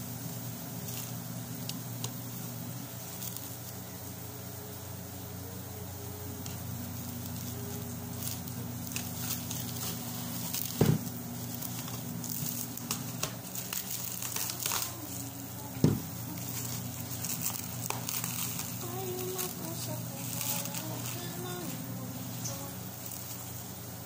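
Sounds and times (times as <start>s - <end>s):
cling film crinkling: 0.2s - 4.7s, 6.0s - 24.0s
dull thumps: 10.7s - 11.1s, 15.7s - 16.2s.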